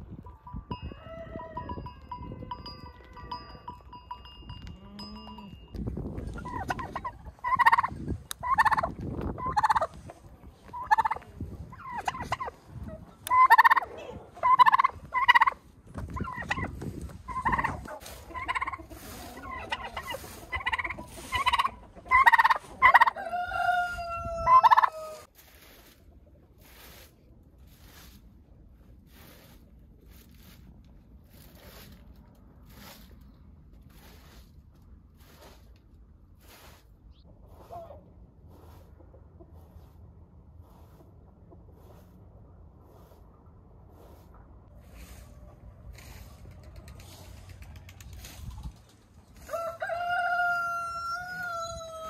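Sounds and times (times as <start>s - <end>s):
broom sweeping dirt floor: 5.9s - 52.0s
turkey gobbling: 6.4s - 10.0s, 10.7s - 12.6s, 13.3s - 15.6s, 16.2s - 16.7s, 17.3s - 25.3s.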